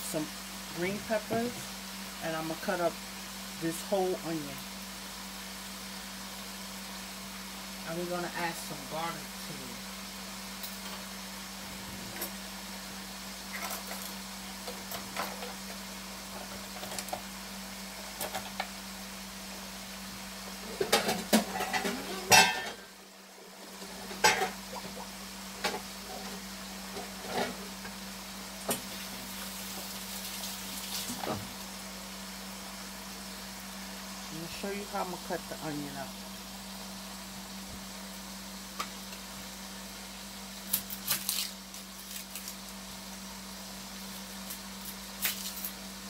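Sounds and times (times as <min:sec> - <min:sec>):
meat sizzling in a pot: 0:00.0 - 0:46.0
kitchen things clicking and knocking: 0:20.7 - 0:22.8.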